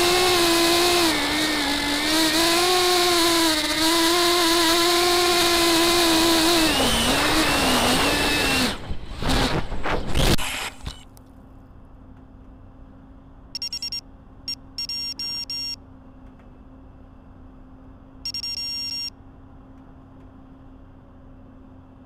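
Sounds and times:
electronic beeps: 0:13.6 - 0:15.8, 0:18.3 - 0:19.1.

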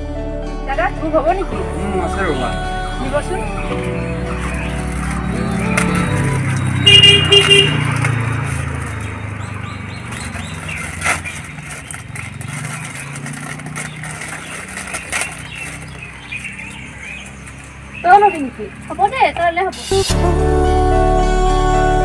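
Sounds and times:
vehicle engine rumble: 0:00.0 - 0:22.0
vehicle horn beeps: 0:06.6 - 0:08.2.

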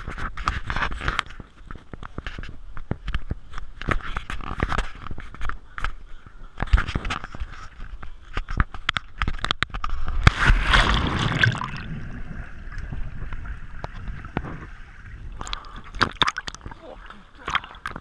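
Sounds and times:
water sloshing and gurgling: 0:08.9 - 0:18.0
large water splash: 0:09.9 - 0:18.0
small water splashes: 0:09.9 - 0:18.0.

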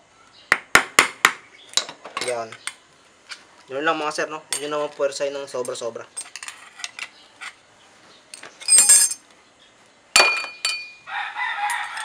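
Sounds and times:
screwdriver clinking on metal: 0:08.4 - 0:09.2
rooster crowing: 0:11.0 - 0:12.0.

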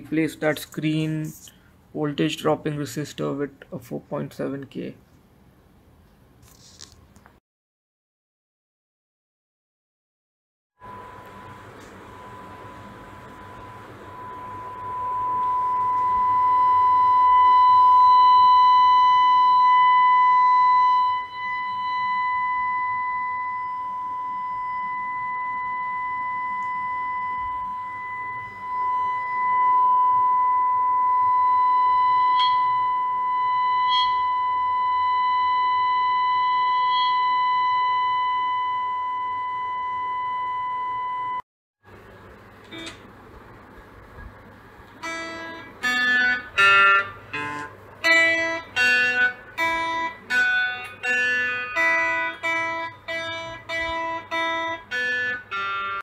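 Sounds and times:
high-pitched test tone: 0:10.8 - 0:41.4, 0:45.0 - 0:56.0.

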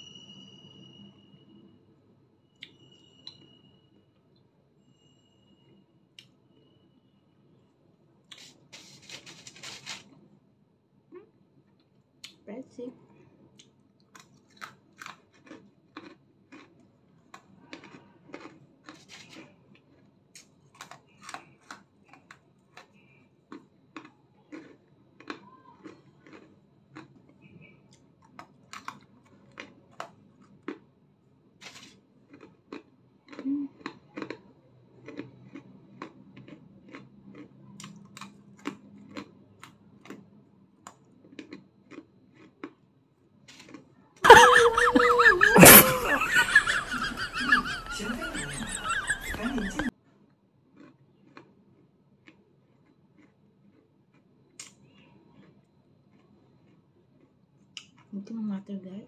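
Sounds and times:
breadsticks crunching: 0:08.3 - 0:10.2, 0:14.1 - 0:16.7, 0:17.3 - 0:22.9, 0:24.0 - 0:27.1, 0:28.3 - 0:30.8, 0:31.6 - 0:34.4, 0:44.4 - 0:49.9, 0:50.8 - 0:51.5.

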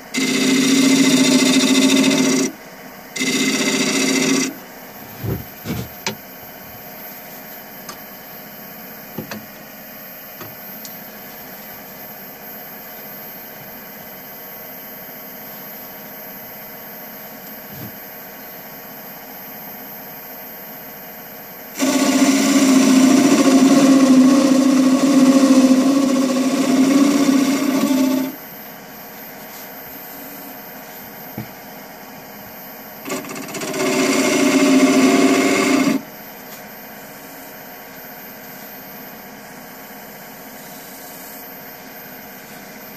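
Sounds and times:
lathe motor humming: 0:00.0 - 0:02.6, 0:03.2 - 0:04.6, 0:21.8 - 0:28.4, 0:33.0 - 0:36.0
turning tool cutting wood: 0:00.2 - 0:02.6, 0:03.2 - 0:04.6, 0:21.8 - 0:28.4, 0:33.0 - 0:36.0.

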